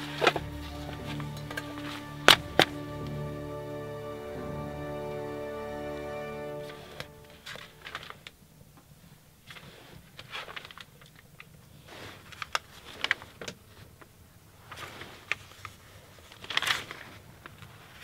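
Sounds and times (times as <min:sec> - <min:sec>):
book pages rustling: 0:06.6 - 0:08.4, 0:09.4 - 0:18.0.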